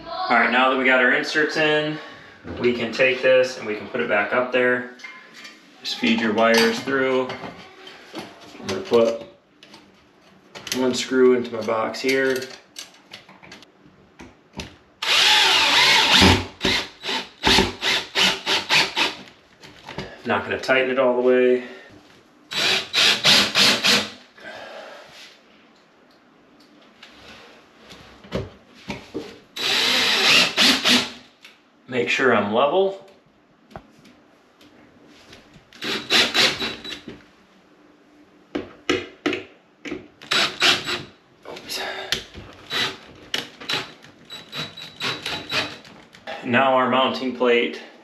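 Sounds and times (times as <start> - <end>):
cordless drill driving screw: 15.0 - 19.2, 22.5 - 24.1, 29.6 - 31.2, 35.8 - 37.0, 40.3 - 41.1, 42.7 - 43.0, 43.7 - 45.8.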